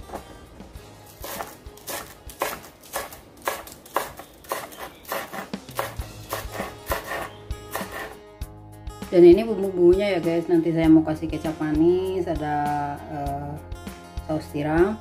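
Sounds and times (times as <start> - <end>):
knife chopping on cutting board: 1.2 - 8.2.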